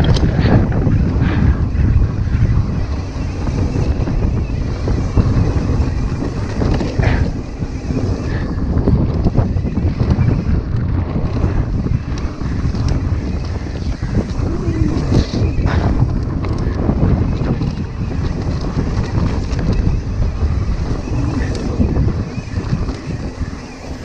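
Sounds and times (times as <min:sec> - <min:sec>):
bike rattling: 0:00.0 - 0:24.0
bike tyres rumbling on dirt: 0:00.0 - 0:24.0
wind buffeting microphone: 0:00.0 - 0:24.0.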